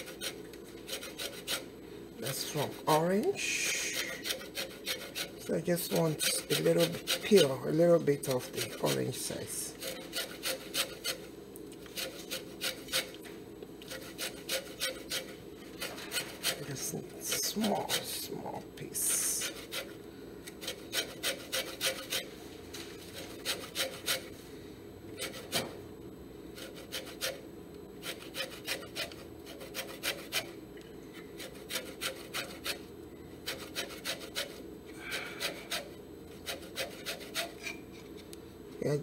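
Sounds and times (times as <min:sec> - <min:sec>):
orange peel grating on metal grater: 0:00.0 - 0:13.2, 0:13.8 - 0:20.0, 0:20.6 - 0:22.3, 0:23.0 - 0:24.3, 0:26.6 - 0:27.4, 0:28.0 - 0:30.6, 0:31.4 - 0:37.8.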